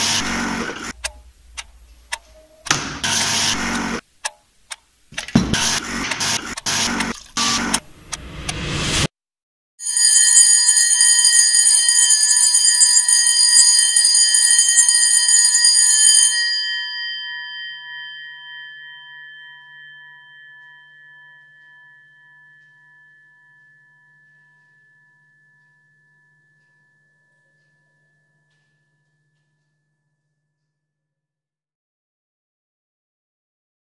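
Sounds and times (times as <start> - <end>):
gong ringing on: 0.0 - 4.0
electric bell ringing: 9.8 - 29.4.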